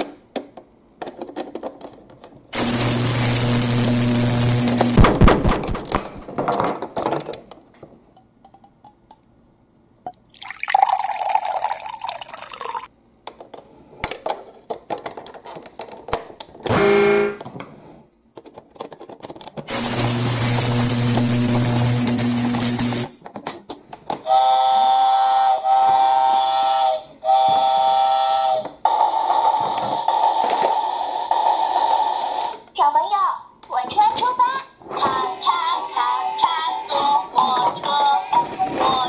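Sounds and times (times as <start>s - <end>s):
water pouring into plastic tank: 10.2s - 12.9s.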